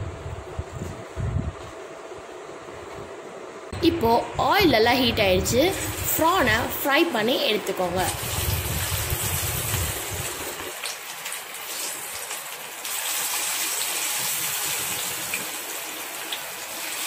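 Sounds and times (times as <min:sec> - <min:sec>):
prawns sizzling in hot oil: 0:08.0 - 0:17.0.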